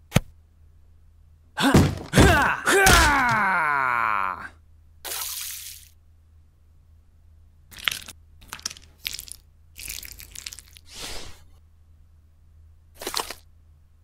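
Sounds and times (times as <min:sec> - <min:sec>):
plastic bricks crunching and clattering: 0:07.7 - 0:10.8.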